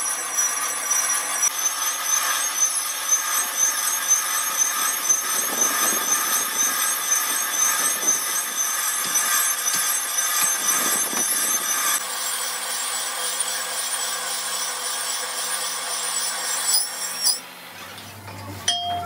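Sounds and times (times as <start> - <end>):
lathe cutting metal: 0.0 - 17.5
low steady hum: 17.7 - 19.0.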